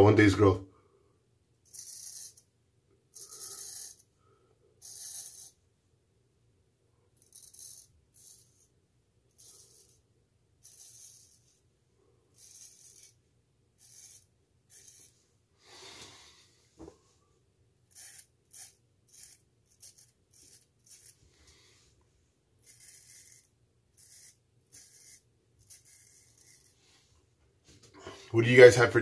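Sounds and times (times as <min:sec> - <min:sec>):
straight razor scraping stubble: 0:17.9 - 0:21.6, 0:22.6 - 0:27.0.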